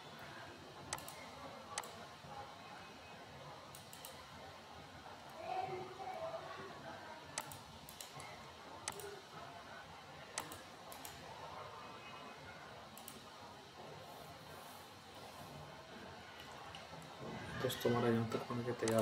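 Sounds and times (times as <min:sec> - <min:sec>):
computer mouse clicking: 0:00.9 - 0:02.0, 0:03.7 - 0:04.2, 0:07.4 - 0:09.2, 0:10.4 - 0:11.2, 0:13.0 - 0:13.2.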